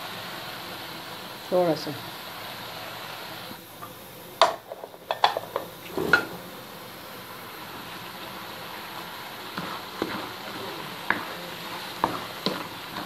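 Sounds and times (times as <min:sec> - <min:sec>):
background hiss: 0:00.0 - 0:13.0
utensils clattering on metal pot: 0:04.4 - 0:06.3.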